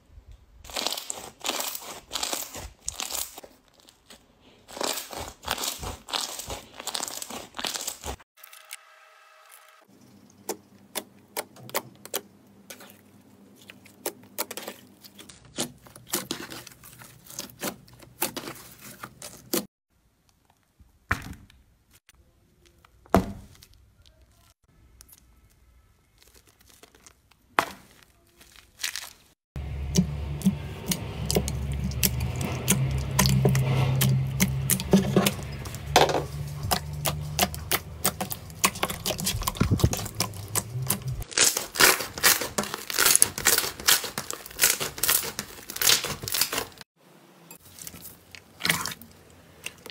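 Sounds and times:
slime crackling and popping: 0.6s - 8.2s, 23.6s - 29.3s, 36.7s - 46.8s.

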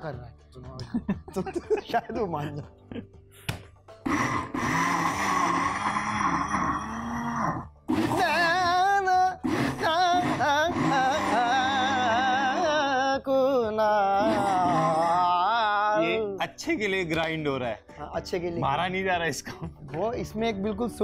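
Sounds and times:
electric blender whirring: 4.0s - 8.2s, 9.4s - 12.1s
man singing wordless tune: 8.1s - 16.5s.

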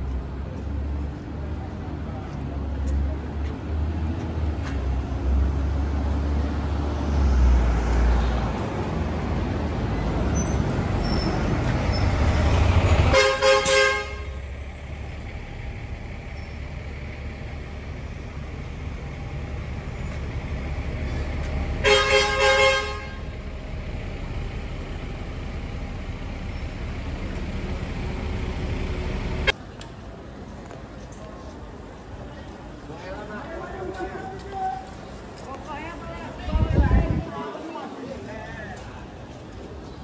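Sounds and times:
street traffic rumble: 0.0s - 40.0s
car horn honking: 13.1s - 14.5s, 21.8s - 23.3s.

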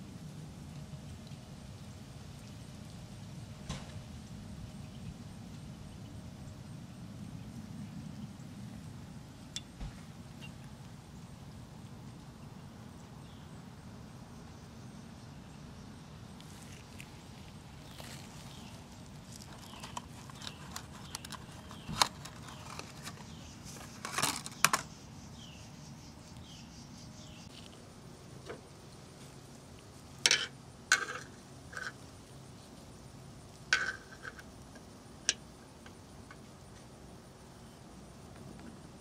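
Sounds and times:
handling clicks and knocks: 19.4s - 24.9s.

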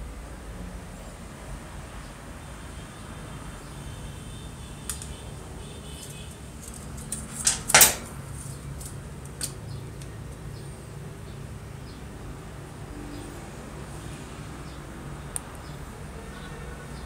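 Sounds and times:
typewriter parts clicking: 6.0s - 8.2s
metallic rattle: 6.6s - 8.3s.

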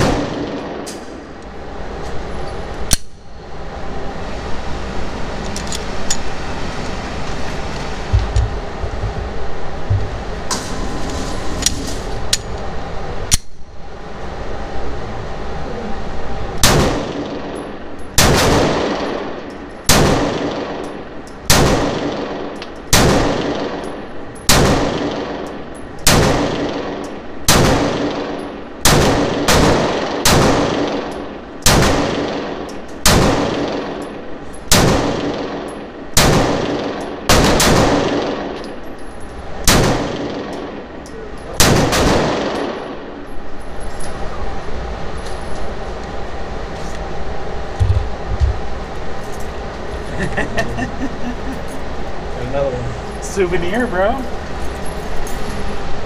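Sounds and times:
pistol shots echoing indoors: 16.6s - 38.7s, 39.6s - 40.8s, 41.6s - 43.2s.

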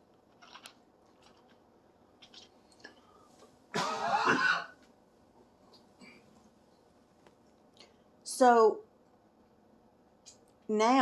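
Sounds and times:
person clearing throat cough: 3.8s - 4.8s.

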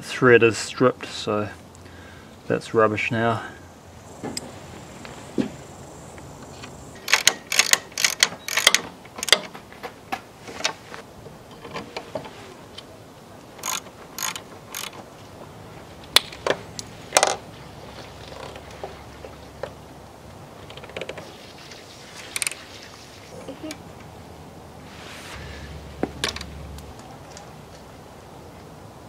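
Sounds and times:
metallic clicks of hand tools: 7.0s - 9.5s, 13.6s - 15.0s.

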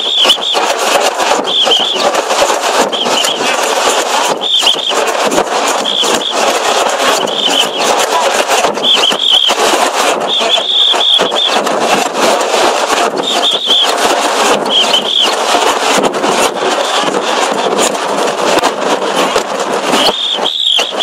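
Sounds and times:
pea whistle trilling blasts: 0.0s - 0.6s, 4.4s - 5.0s, 8.8s - 9.6s, 10.2s - 11.6s, 13.2s - 13.9s, 14.7s - 15.4s, 20.0s - 21.0s.

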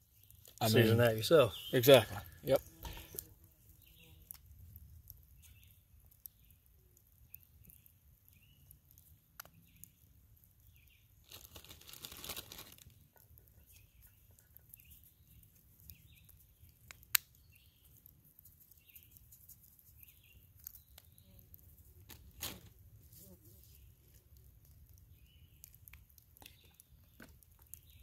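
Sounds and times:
crinkling rustle: 11.0s - 17.1s, 17.8s - 28.0s.

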